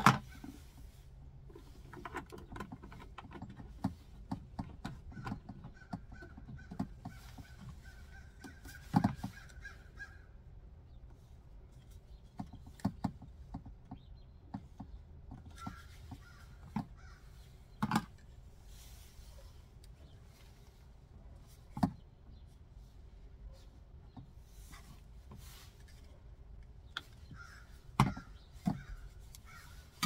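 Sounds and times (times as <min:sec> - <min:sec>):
plastic parts clicking and knocking: 0:00.0 - 0:00.6, 0:01.5 - 0:09.7, 0:11.8 - 0:18.4, 0:21.7 - 0:22.0, 0:24.1 - 0:30.0
crows cawing: 0:27.4 - 0:29.9.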